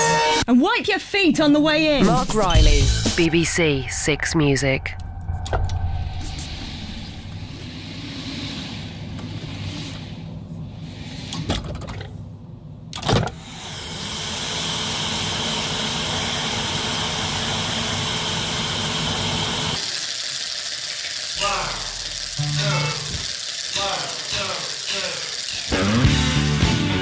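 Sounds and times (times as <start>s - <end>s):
mechanical engine-like noise: 1.9s - 11.5s, 15.0s - 26.9s.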